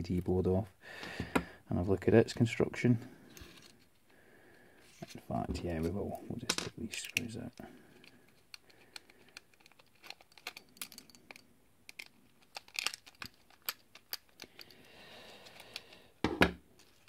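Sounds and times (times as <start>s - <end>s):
screwdriver clicking and scraping: 7.9s - 14.8s.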